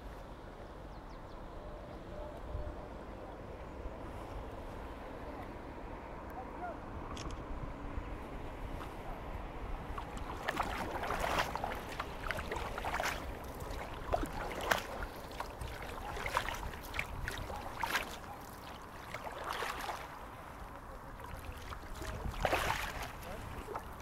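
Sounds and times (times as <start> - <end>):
paddle strokes splashing water: 8.4 - 24.0.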